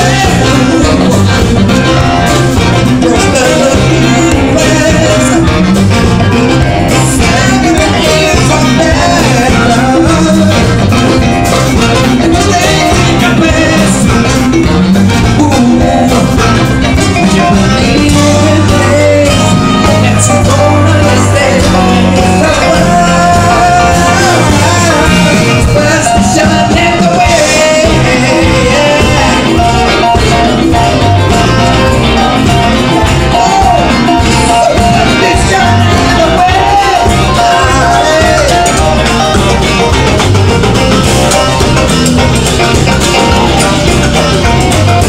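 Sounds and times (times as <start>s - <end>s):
live funk band playing: 0.0s - 45.0s.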